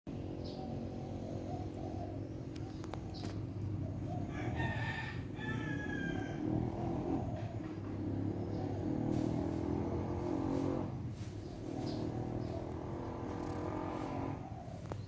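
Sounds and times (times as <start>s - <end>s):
steady low hum: 0.1s - 15.0s
rooster crowing: 4.2s - 7.2s.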